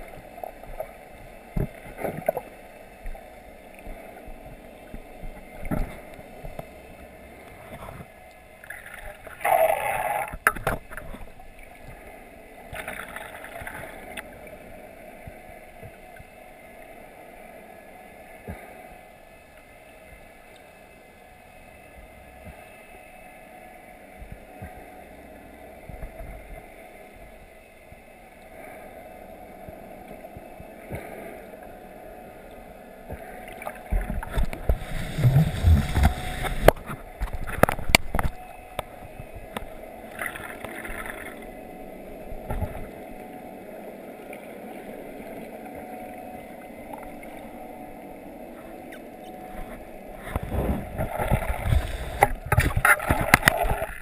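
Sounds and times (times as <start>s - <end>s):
underwater hiss: 34.4s - 36.9s.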